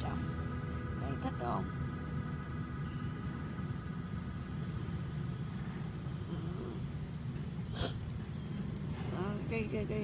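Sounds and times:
low background rumble: 0:00.0 - 0:10.0
sharp sniff: 0:07.7 - 0:08.0.

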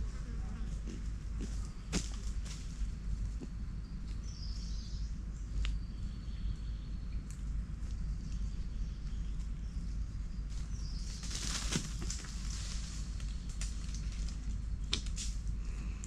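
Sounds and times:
low rumble: 0:00.0 - 0:16.0
dry leaves rustling: 0:10.5 - 0:15.4.

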